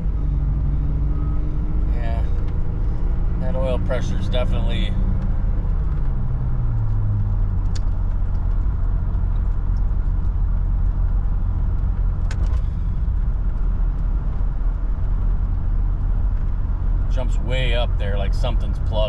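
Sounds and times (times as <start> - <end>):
car engine drone from inside: 0.0 - 19.0
road noise: 0.0 - 19.0.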